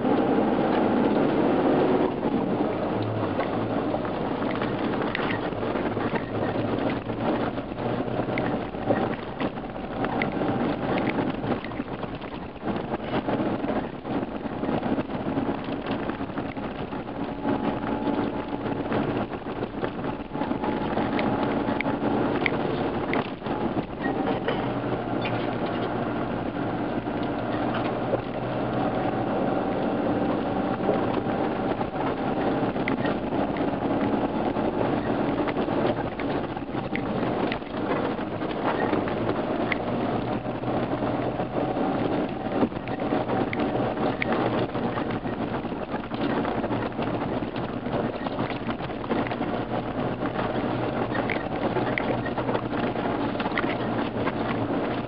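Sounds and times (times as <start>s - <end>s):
off-road vehicle engine running: 0.0s - 55.0s
tyres on gravel: 0.7s - 29.6s, 30.9s - 55.0s
knocks and rattles: 2.0s - 29.1s.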